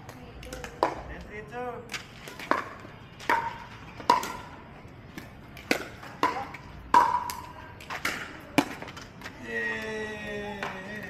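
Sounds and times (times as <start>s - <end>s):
paddles hitting plastic ball: 0.0s - 1.3s, 1.9s - 9.4s.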